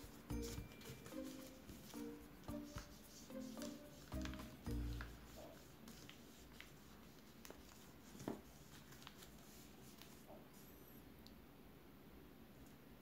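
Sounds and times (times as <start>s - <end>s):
paper crinkle: 0.8s - 10.2s
paper rustling and creasing: 3.5s - 10.3s.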